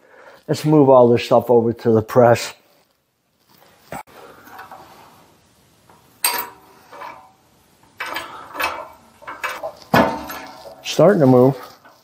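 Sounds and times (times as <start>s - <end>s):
metallic clanks and clinks: 6.2s - 12.0s.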